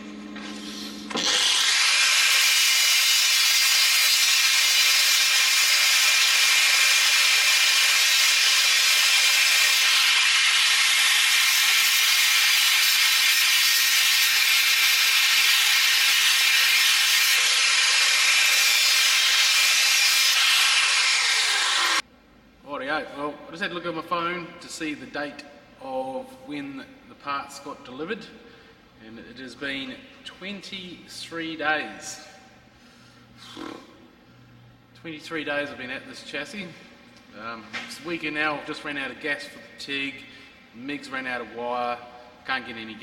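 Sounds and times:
angle grinder grinding steel: 1.1s - 22.0s.

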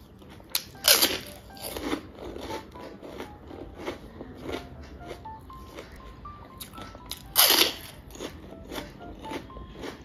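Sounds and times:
crunchy chip bite and chewing: 0.0s - 6.0s, 6.6s - 10.0s.

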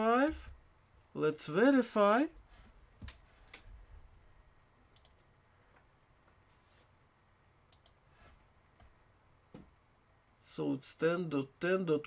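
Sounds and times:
faint computer mouse clicks: 5.0s - 5.3s.

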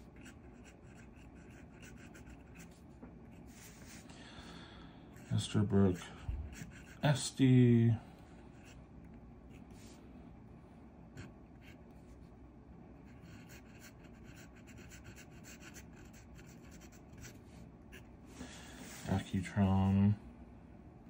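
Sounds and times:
fountain pen scratching on paper: 0.1s - 4.0s, 6.5s - 7.0s, 13.1s - 18.0s.

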